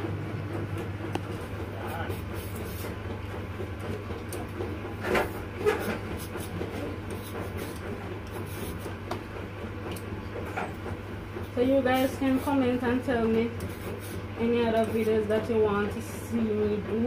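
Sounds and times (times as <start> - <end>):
low mechanical hum: 0.0 - 17.0
vegetable peeler scraping potato: 5.0 - 9.0, 13.4 - 15.3.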